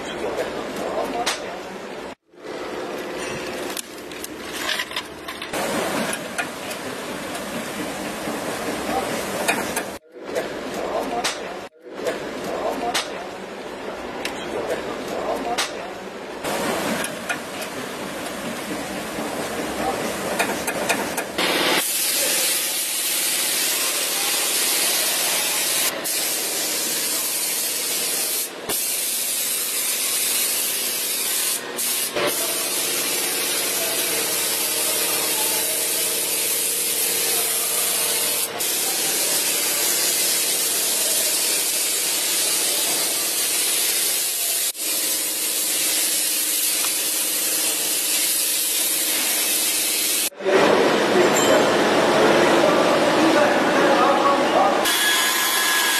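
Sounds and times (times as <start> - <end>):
paint spray gun hissing: 21.4 - 50.3.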